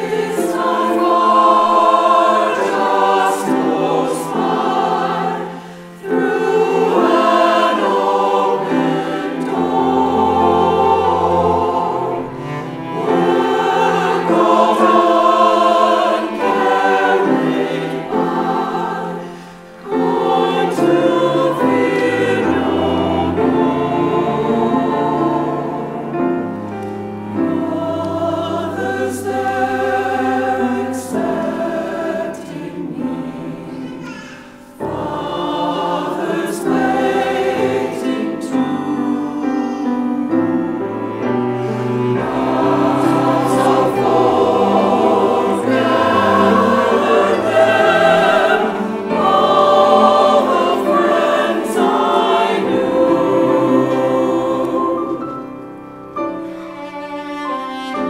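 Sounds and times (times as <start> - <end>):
mixed choir singing: 0.0 - 58.0
cello low notes: 8.3 - 15.0, 21.0 - 30.9.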